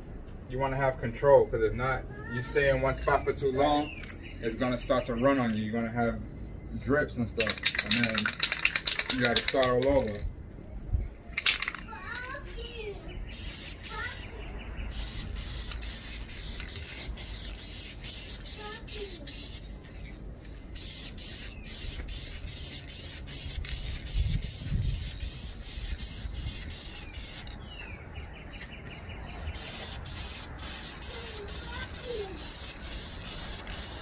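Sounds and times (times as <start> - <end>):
aerosol spray can hissing: 13.3 - 14.3, 14.9 - 19.6, 20.8 - 27.6, 29.5 - 34.0.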